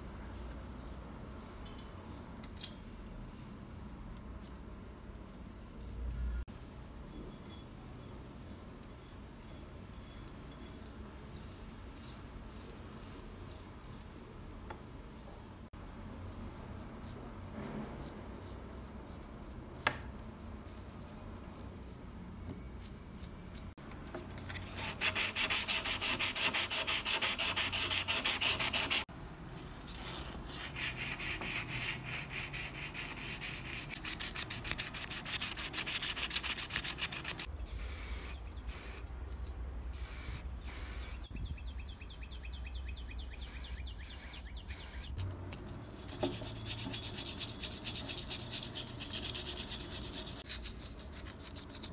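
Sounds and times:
sandpaper rubbing on metal: 24.5s - 29.1s, 30.0s - 37.5s, 45.9s - 51.9s.

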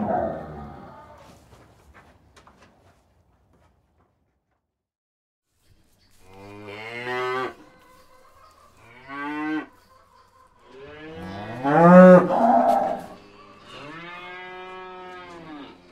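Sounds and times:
cows mooing: 0.0s - 1.2s, 10.7s - 15.9s.

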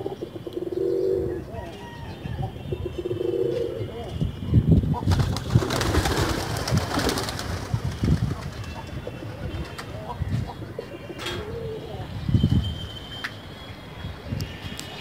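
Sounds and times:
pigeons cooing: 0.0s - 4.1s, 5.0s - 12.3s.

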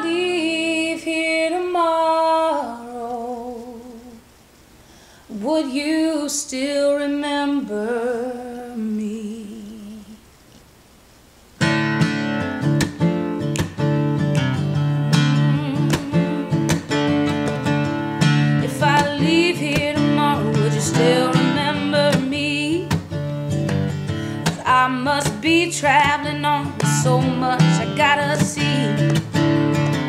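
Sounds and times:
woman singing with vibrato: 0.0s - 4.3s, 5.3s - 10.3s, 15.1s - 17.4s, 18.5s - 23.0s, 24.3s - 29.3s
acoustic guitar picking and strumming: 11.6s - 30.0s.

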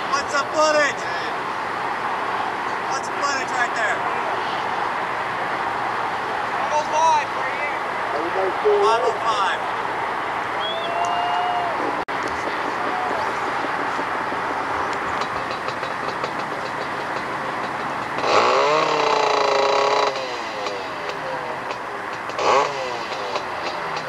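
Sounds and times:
steady background noise: 0.0s - 24.0s
atv engine revving: 12.1s - 24.0s.

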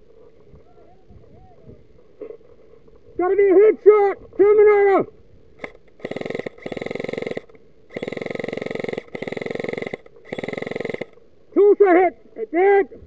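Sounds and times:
airsoft gun firing bursts: 5.6s - 11.2s
gearbox buzzing: 5.6s - 11.2s.

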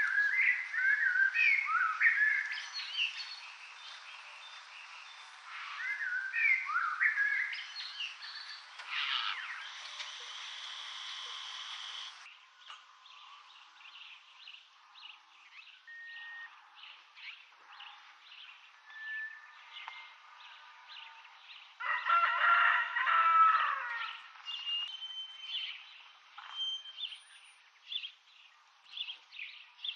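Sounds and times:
small birds chirping: 0.0s - 21.8s, 24.0s - 29.9s
rooster crowing: 21.8s - 24.2s.

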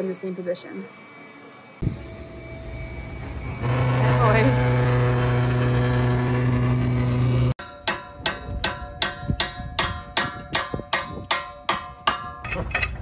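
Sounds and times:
low machine hum: 0.0s - 7.6s.

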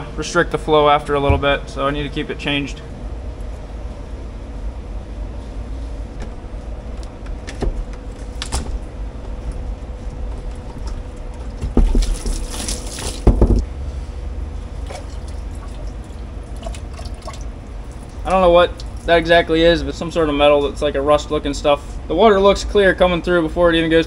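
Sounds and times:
steady low hum: 0.0s - 24.0s
heavy thump: 1.2s - 1.7s
water sloshing and splashing: 10.8s - 13.6s, 14.8s - 19.2s.

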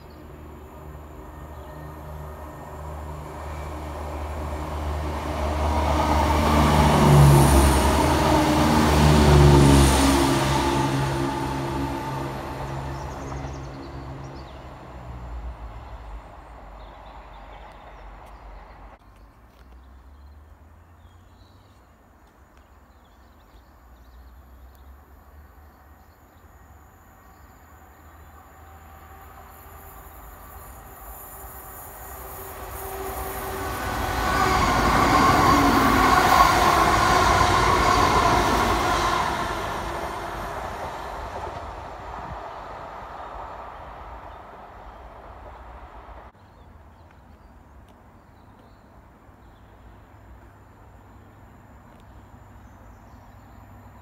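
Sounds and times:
diesel train engine drone: 0.0s - 19.0s, 26.5s - 46.4s.

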